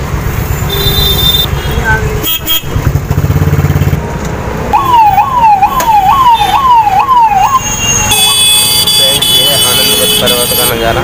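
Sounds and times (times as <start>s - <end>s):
vehicle engine rumbling: 0.0s - 11.0s
siren wailing: 4.7s - 8.5s.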